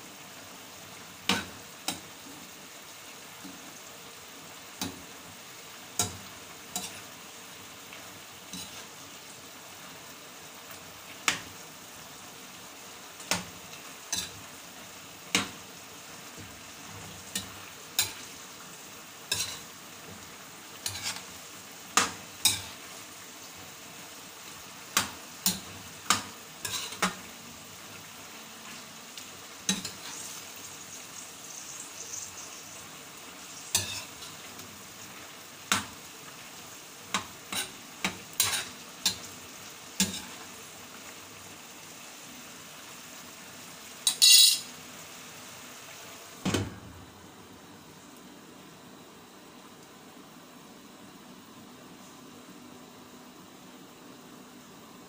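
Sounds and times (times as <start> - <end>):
sauce sizzling: 0.0 - 55.0
metal spatula scraping frying pan: 19.3 - 19.7, 20.8 - 21.3, 26.6 - 27.1, 33.6 - 34.2, 38.4 - 39.2, 44.1 - 44.7.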